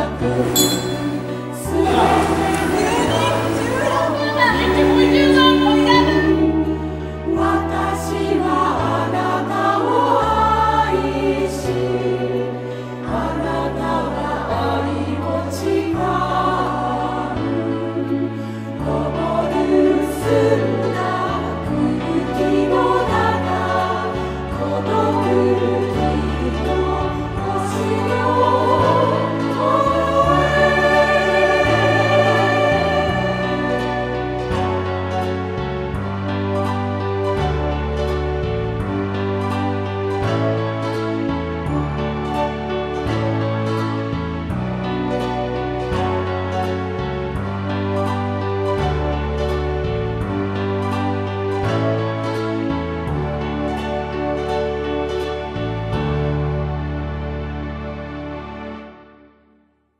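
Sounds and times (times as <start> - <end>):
choir singing: 0.0 - 35.5.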